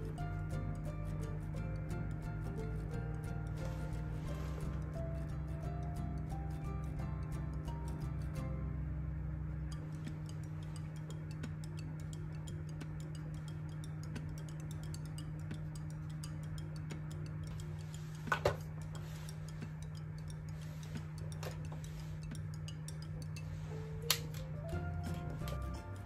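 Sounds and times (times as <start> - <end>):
soft background music: 0.0 - 26.0
fast light ticking percussion: 9.6 - 26.0.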